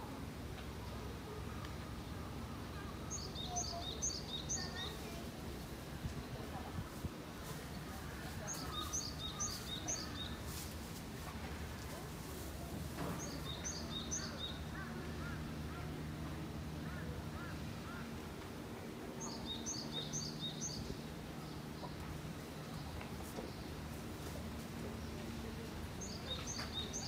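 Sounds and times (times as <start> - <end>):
steady low hum: 0.0 - 27.0
songbird chirping: 0.6 - 5.5, 7.7 - 10.7, 13.0 - 18.2, 19.1 - 27.0.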